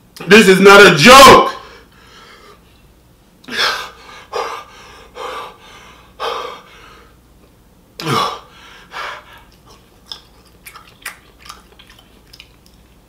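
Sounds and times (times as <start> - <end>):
man breathing sharply: 1.6 - 2.6, 3.5 - 7.2, 8.1 - 9.5.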